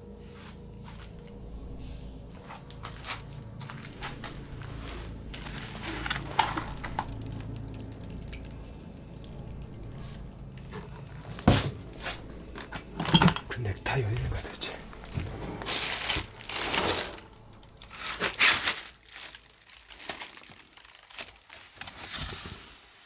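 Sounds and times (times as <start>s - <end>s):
objects rattling in drawers: 12.6s - 13.7s, 15.6s - 17.3s.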